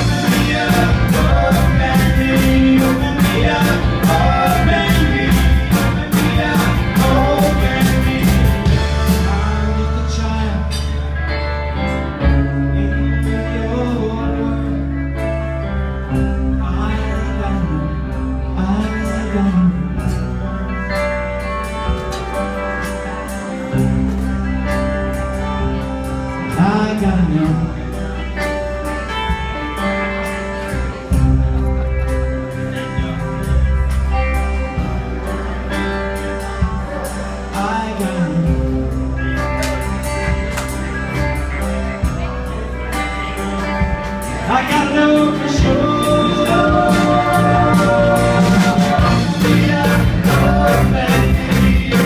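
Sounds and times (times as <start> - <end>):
drum kit with cymbals: 0.0 - 9.6, 43.4 - 52.0
electric bass: 0.0 - 52.0
electric guitars: 0.0 - 52.0.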